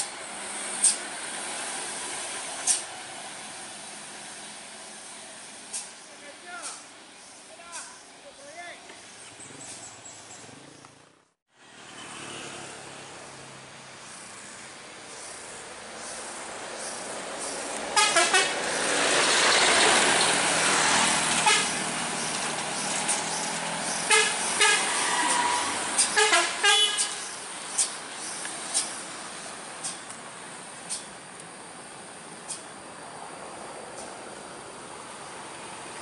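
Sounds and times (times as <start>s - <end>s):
truck passing by: 0.0s - 7.5s, 9.0s - 36.0s
horn tooting: 17.9s - 18.8s, 21.3s - 21.9s, 24.0s - 27.3s.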